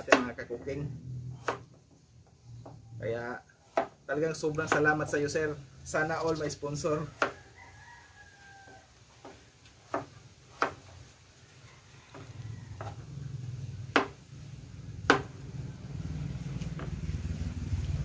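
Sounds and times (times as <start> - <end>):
knife chopping on plastic board: 0.0 - 0.4, 1.4 - 1.8, 3.6 - 5.2, 7.1 - 7.4, 9.2 - 11.0, 13.9 - 14.2, 15.0 - 15.4.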